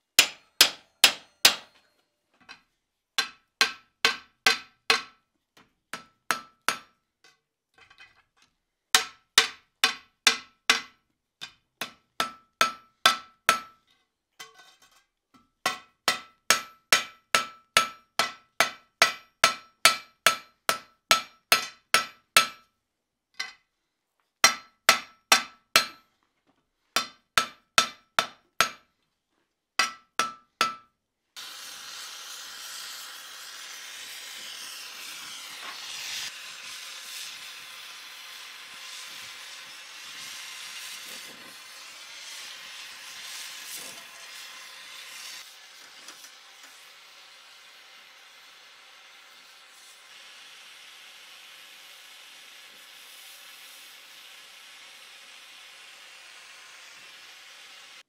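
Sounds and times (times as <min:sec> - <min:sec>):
hammer striking iron on anvil: 0:00.2 - 0:01.8, 0:03.2 - 0:05.2, 0:05.9 - 0:07.0, 0:09.0 - 0:13.8, 0:15.6 - 0:22.7, 0:24.4 - 0:26.1, 0:27.0 - 0:28.9, 0:29.8 - 0:30.9
gas torch hissing: 0:31.4 - 0:58.0.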